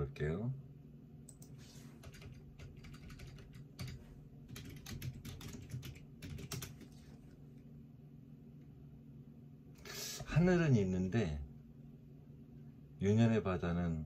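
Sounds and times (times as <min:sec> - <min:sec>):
steady low hum: 0:00.0 - 0:14.0
typing on computer keyboard: 0:01.3 - 0:07.0.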